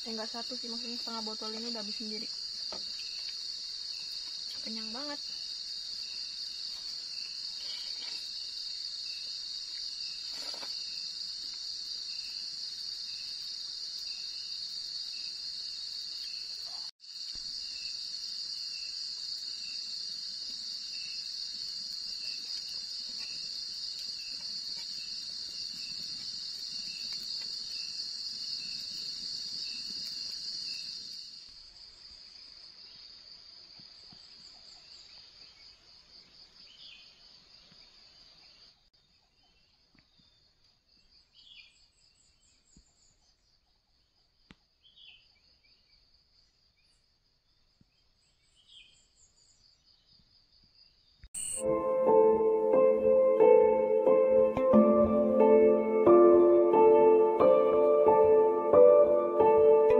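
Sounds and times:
crickets trilling: 0:00.0 - 0:38.9.

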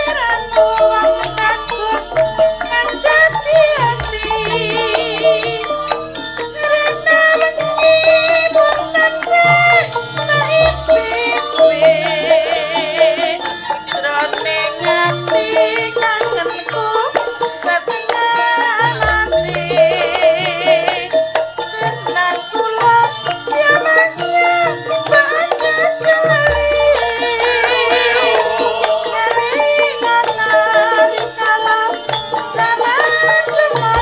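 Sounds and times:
wavering high melodic line: 0:00.0 - 0:08.7, 0:26.0 - 0:31.2
gamelan ensemble playing: 0:00.0 - 0:34.0
deep low gong strokes: 0:26.8 - 0:30.0.

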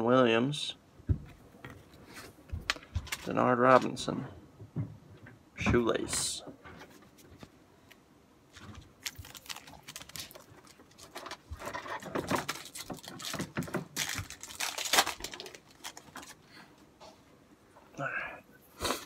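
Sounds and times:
wrapper crinkling and tearing: 0:08.5 - 0:16.4
cards rustling: 0:08.5 - 0:16.5.

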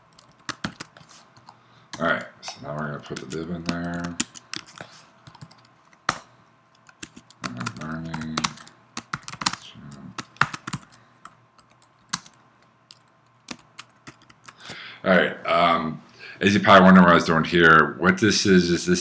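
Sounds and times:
computer keyboard typing: 0:00.0 - 0:14.7.

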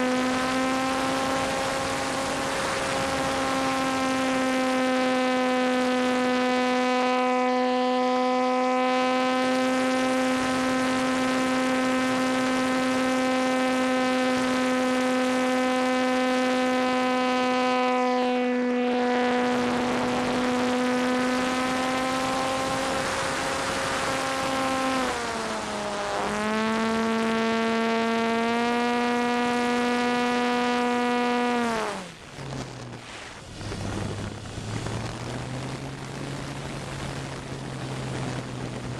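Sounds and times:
model airplane motor buzzing: 0:00.0 - 0:38.9
wind rushing: 0:32.2 - 0:38.9.

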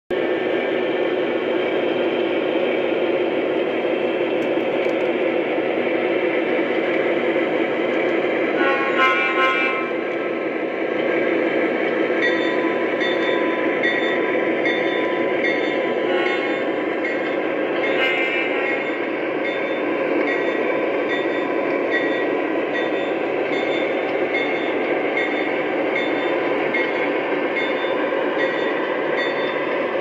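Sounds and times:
model diesel locomotive rumble: 0:00.1 - 0:30.0.

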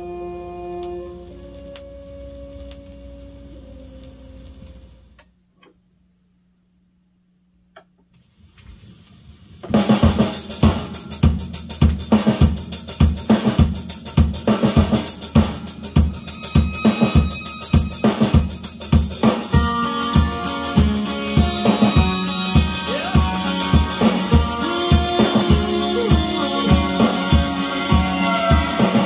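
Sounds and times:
drum-kit beat: 0:09.6 - 0:29.0
rock music from a record: 0:09.6 - 0:29.0.

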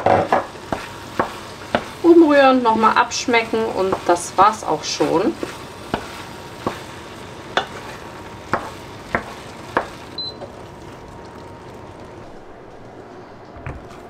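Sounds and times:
wooden spatula knocking on pan: 0:00.0 - 0:02.0, 0:03.9 - 0:04.1, 0:05.9 - 0:06.9, 0:08.5 - 0:10.0
meat sizzling in a pan: 0:00.0 - 0:12.2.

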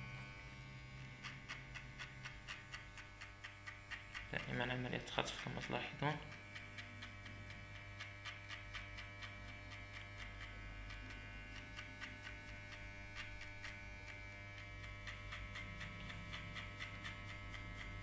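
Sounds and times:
hair clipper buzzing: 0:00.0 - 0:18.0
light ticking: 0:01.0 - 0:17.9.

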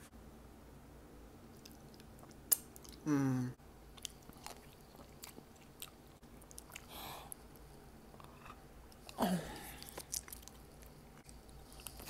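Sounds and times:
wet chewing: 0:01.5 - 0:03.0, 0:04.0 - 0:12.0
person humming mm: 0:03.0 - 0:03.6.

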